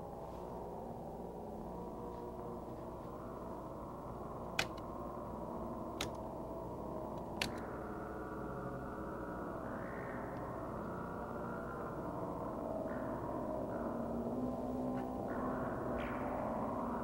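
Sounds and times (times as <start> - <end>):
electronic drone: 0.0 - 17.0
sharp clicks: 4.5 - 4.9, 6.0 - 6.3, 7.2 - 7.7.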